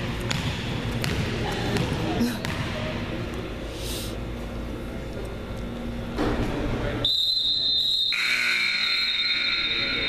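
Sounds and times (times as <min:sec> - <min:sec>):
long shrill steady tone: 0:07.1 - 0:10.0.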